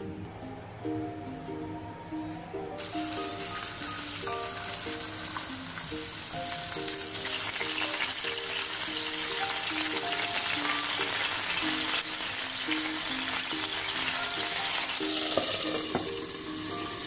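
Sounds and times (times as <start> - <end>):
background music melody: 0.0 - 17.0
chicken sizzling in oil: 2.8 - 17.0.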